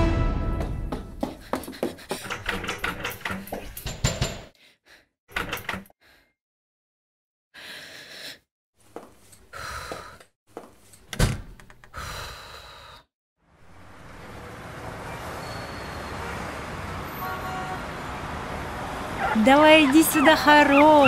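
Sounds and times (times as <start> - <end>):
city street traffic: 13.4 - 21.0.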